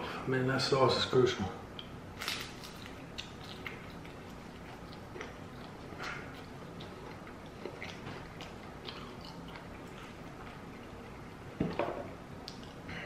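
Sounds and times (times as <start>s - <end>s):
chewing crispy food: 2.2s - 11.4s.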